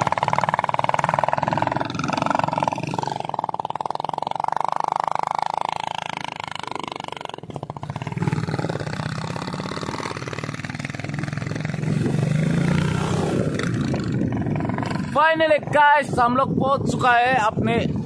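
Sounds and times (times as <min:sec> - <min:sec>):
motorcycle engine droning: 0:00.0 - 0:18.0.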